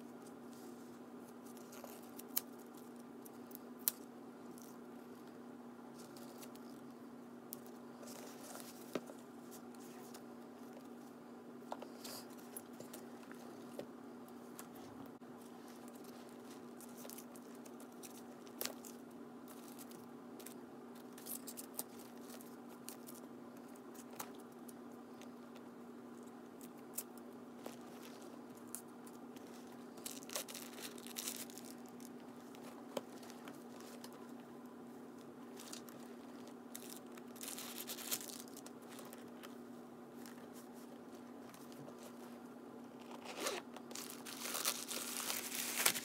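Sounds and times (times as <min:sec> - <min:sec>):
tissue paper crinkling: 0:29.4 - 0:34.1, 0:35.5 - 0:39.5, 0:43.1 - 0:46.0.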